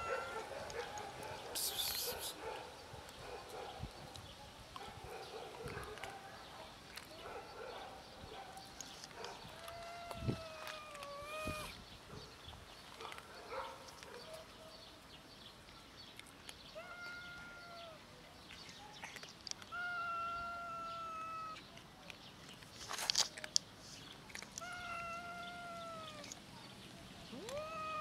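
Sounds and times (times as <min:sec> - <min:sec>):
cat meowing: 0:09.6 - 0:11.8, 0:16.8 - 0:18.0, 0:19.7 - 0:21.6, 0:24.6 - 0:26.3, 0:27.3 - 0:28.0.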